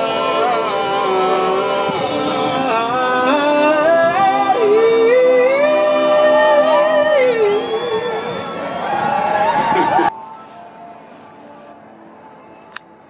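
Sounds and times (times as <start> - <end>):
man singing lead: 0.0 - 8.7.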